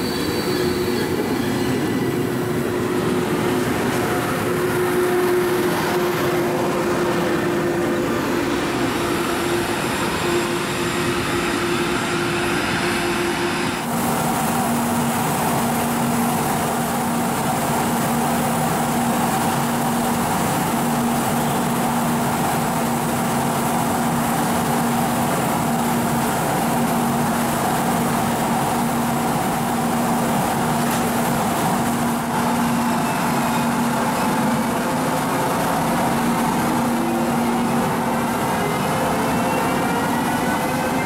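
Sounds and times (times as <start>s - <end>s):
locomotive cooling fans humming: 0.0s - 41.0s.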